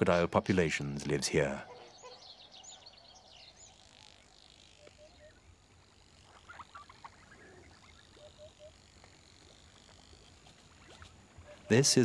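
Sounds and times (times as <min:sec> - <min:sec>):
higher chirps: 0:01.5 - 0:12.0
short low animal calls: 0:06.1 - 0:11.9.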